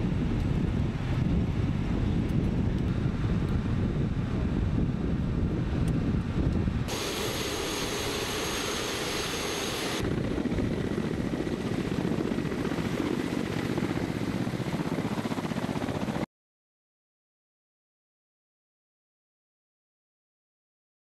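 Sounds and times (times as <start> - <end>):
high turbine whine: 0.0 - 16.2
helicopter rotor beat: 0.0 - 16.3.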